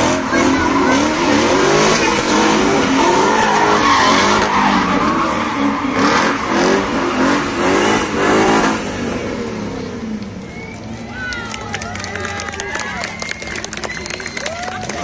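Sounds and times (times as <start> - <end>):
tyres screeching: 0.0 - 7.8
car engines revving: 0.0 - 15.0.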